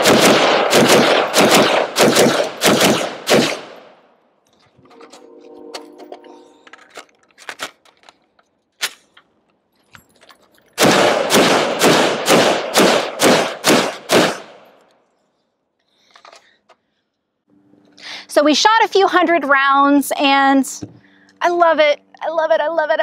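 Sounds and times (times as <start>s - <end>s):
rifle shots: 0.0s - 4.0s, 10.8s - 14.7s.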